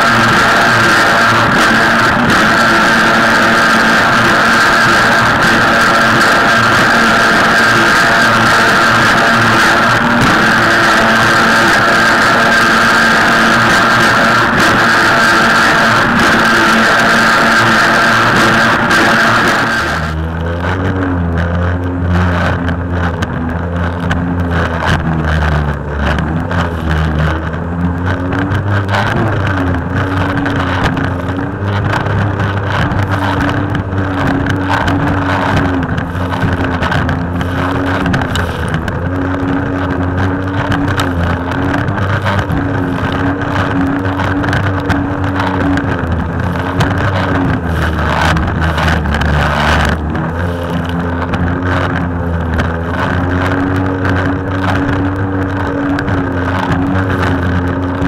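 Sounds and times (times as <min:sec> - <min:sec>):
rock music with guitar: 0:00.0 - 0:20.2
jet ski engine: 0:00.0 - 0:58.0
water noise: 0:00.0 - 0:58.0
wind: 0:00.0 - 0:58.0.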